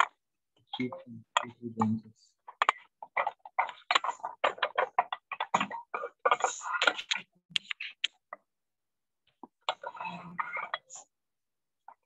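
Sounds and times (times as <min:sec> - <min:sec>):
rapid irregular clicking: 0:00.0 - 0:08.5.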